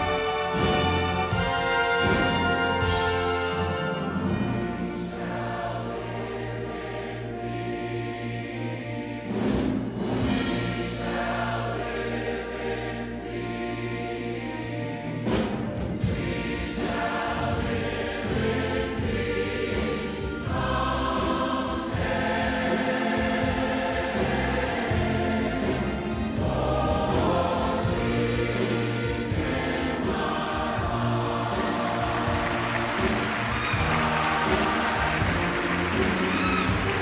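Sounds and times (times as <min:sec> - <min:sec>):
choir singing a hymn: 0:00.0 - 0:37.0
symphony orchestra playing: 0:00.0 - 0:37.0.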